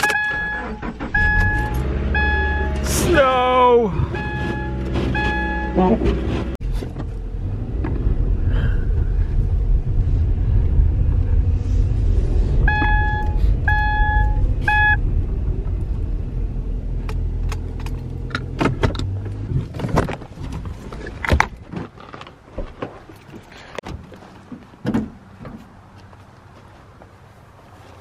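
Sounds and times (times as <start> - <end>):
electronic beeps: 0.0 - 2.7, 4.2 - 5.8, 12.7 - 15.0
engine and tyres rumbling: 0.0 - 28.0.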